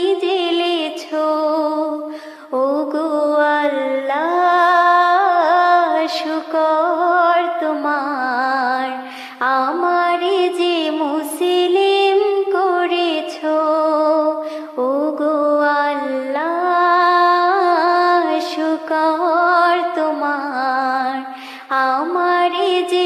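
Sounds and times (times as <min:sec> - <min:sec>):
woman singing unaccompanied: 0:00.0 - 0:23.0.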